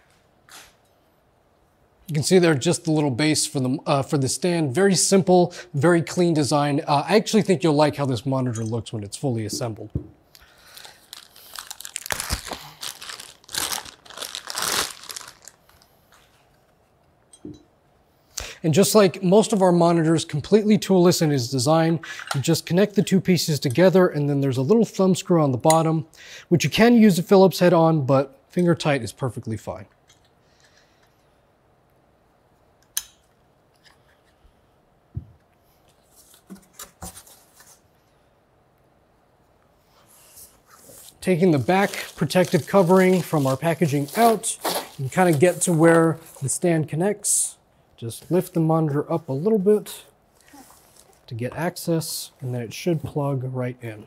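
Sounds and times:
plastic bag rustling and crinkling: 10.4 - 16.5, 40.4 - 46.7, 49.4 - 51.3
polystyrene foam rubbing and squeaking: 10.8 - 15.8, 40.2 - 46.4, 50.4 - 51.3.

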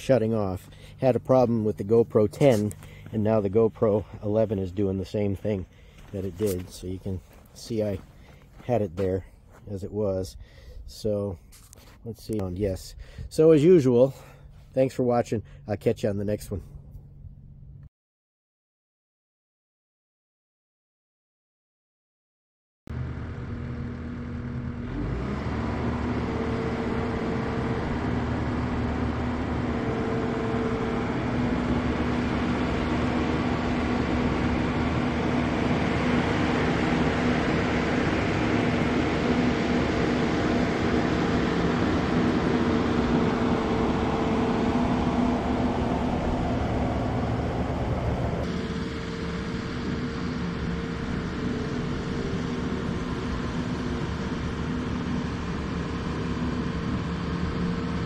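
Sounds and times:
diesel engine revving: 22.9 - 58.0.

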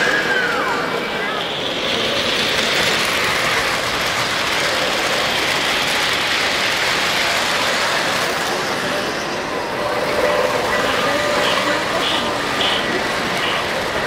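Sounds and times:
model train wheels rattling: 0.9 - 14.0.

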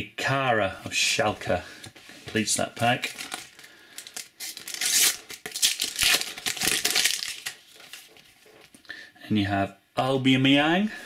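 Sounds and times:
sticker packet tearing and crinkling: 3.0 - 8.2.

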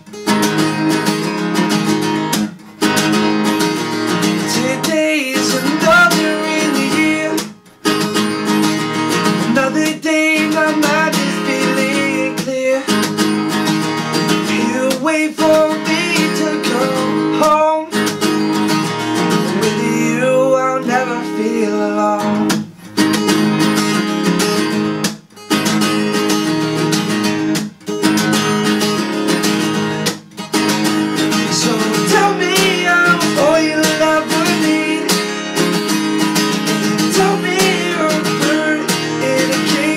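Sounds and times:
acoustic guitar strumming: 0.0 - 39.9
man singing: 4.3 - 7.6, 9.4 - 13.1, 14.4 - 18.1, 19.4 - 22.6, 31.3 - 35.8, 36.8 - 39.9.

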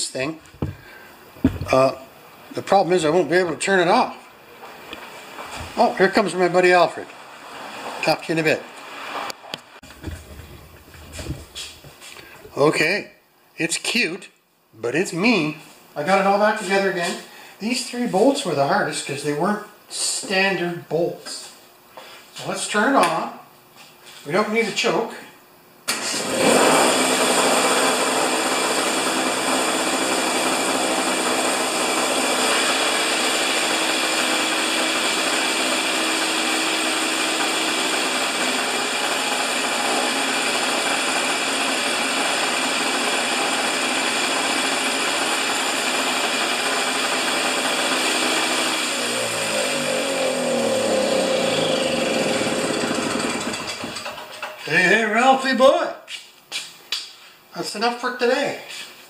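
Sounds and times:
two-stroke engine running: 26.2 - 54.2.

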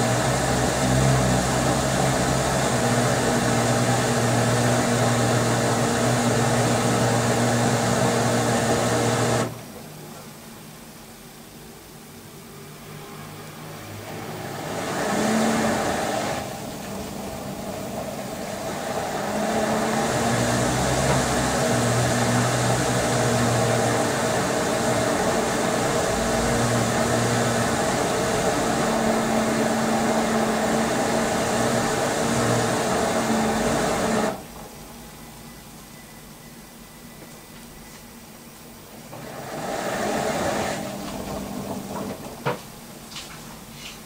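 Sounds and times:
washing machine motor humming: 0.0 - 10.5, 12.5 - 35.1, 38.2 - 43.7.

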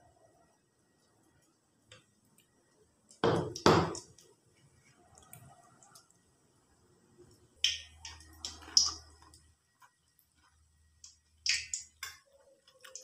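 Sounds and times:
food frying in hot oil: 5.0 - 13.0.

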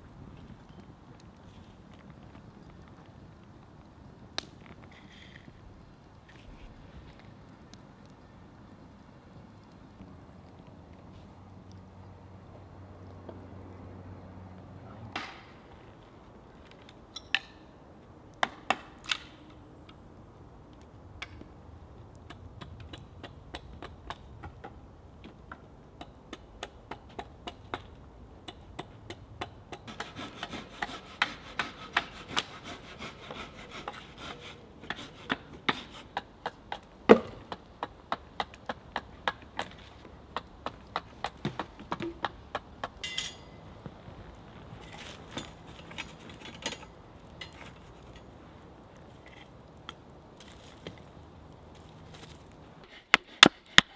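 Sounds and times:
wood shaving strokes: 28.8 - 43.0, 44.2 - 53.9
blade cutting wood: 29.9 - 36.2.

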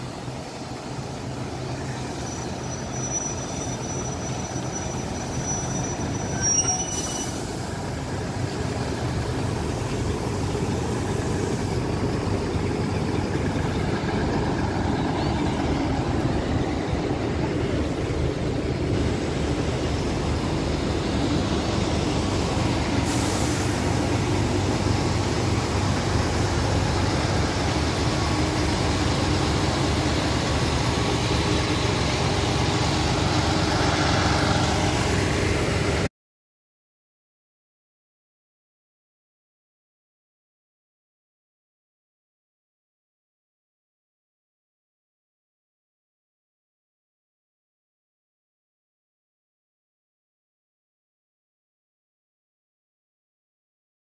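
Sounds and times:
train machinery droning: 0.0 - 36.1
short hiss: 23.1 - 24.0.

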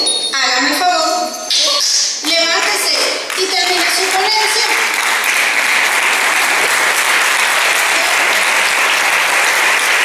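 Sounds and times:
audience applauding: 2.7 - 10.0.

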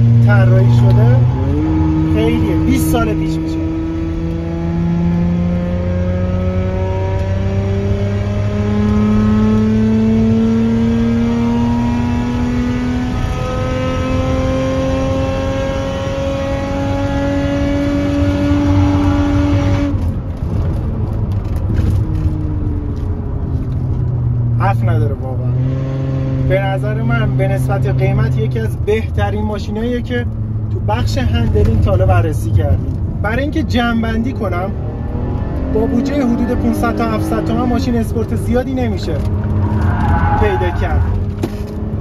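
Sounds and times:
car engine accelerating: 0.0 - 42.0
rough car noise: 17.5 - 27.0, 27.6 - 42.0.

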